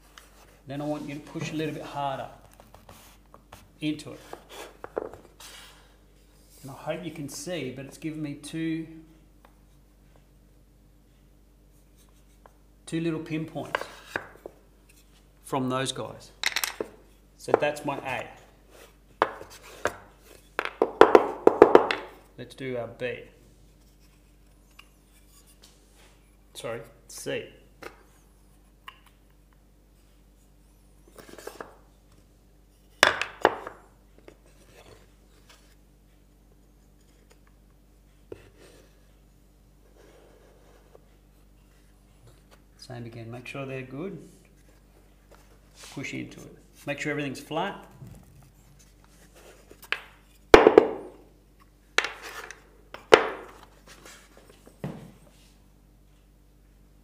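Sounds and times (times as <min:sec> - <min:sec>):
wooden knocks: 0:20.6 - 0:22.1.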